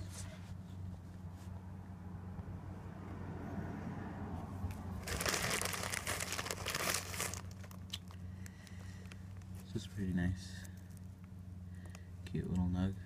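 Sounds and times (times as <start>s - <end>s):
steady low hum: 0.0s - 13.0s
plastic bag crinkling: 5.0s - 9.6s.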